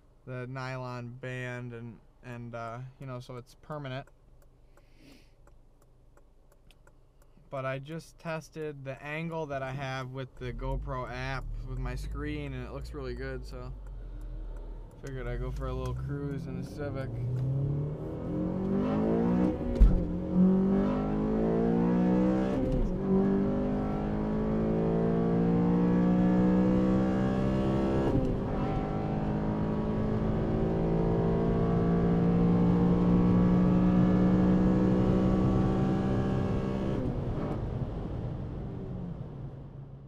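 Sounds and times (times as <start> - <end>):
car engine accelerating: 9.4 - 40.0.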